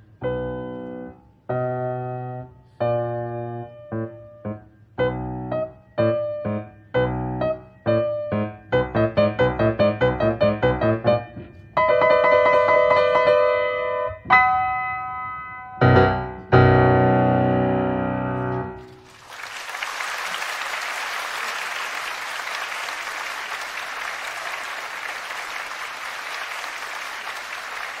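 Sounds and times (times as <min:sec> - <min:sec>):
piano chords: 0:00.0 - 0:19.1
audience applauding: 0:18.8 - 0:28.0.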